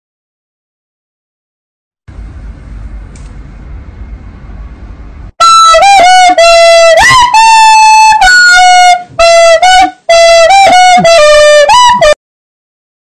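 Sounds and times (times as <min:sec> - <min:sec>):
shrill whistle melody: 0:05.4 - 0:12.2.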